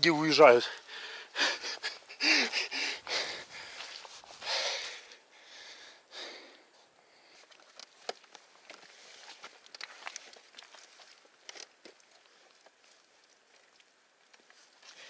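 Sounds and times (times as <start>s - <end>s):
man breathing hard: 0.7s - 7.5s.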